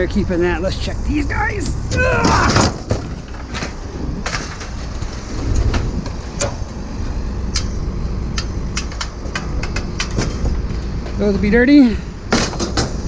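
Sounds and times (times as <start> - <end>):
steady low rumble: 0.0 - 13.0.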